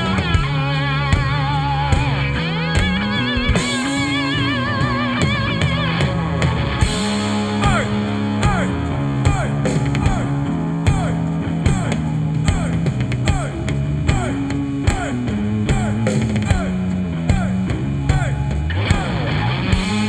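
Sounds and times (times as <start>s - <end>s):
electric guitar: 0.0s - 20.0s
live rock band playing: 0.0s - 20.0s
drum hits: 6.8s - 19.2s.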